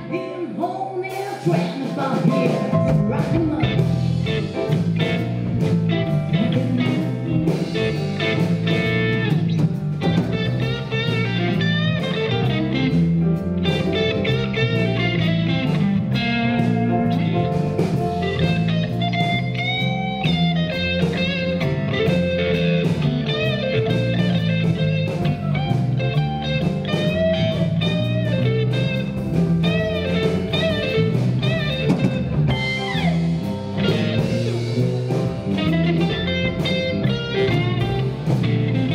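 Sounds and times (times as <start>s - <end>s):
blues band playing: 0.0s - 38.9s
electric guitar lead: 0.0s - 38.9s.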